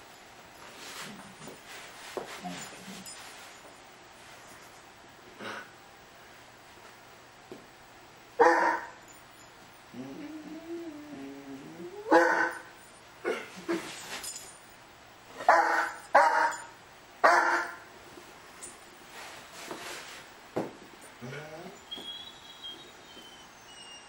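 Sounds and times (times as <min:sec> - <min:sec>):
dog barking: 0:08.4 - 0:09.0, 0:12.1 - 0:12.7, 0:15.5 - 0:17.9
dog whining: 0:09.9 - 0:12.6, 0:21.2 - 0:24.0.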